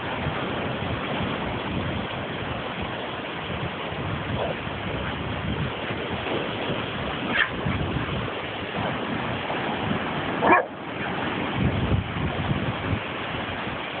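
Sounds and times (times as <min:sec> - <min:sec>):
wind noise on microphone: 0:00.0 - 0:14.0
dog barking: 0:07.3 - 0:07.5, 0:10.4 - 0:10.8.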